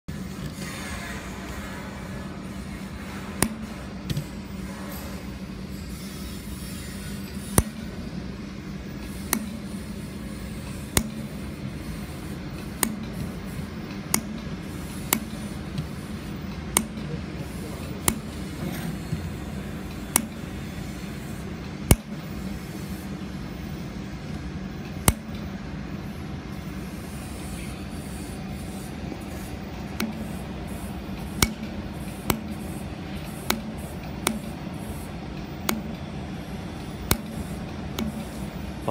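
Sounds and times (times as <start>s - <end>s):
steady machine hum: 0.1s - 38.9s
laser welder pulse snaps: 2.6s - 4.3s, 7.3s - 8.0s, 9.0s - 17.1s, 18.0s - 18.6s, 19.3s - 23.0s, 24.9s - 25.6s, 29.8s - 38.6s.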